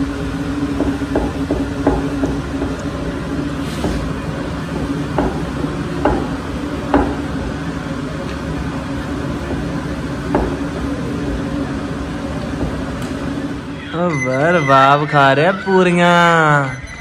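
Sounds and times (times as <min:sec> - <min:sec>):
gas burner hum: 0:00.0 - 0:16.7.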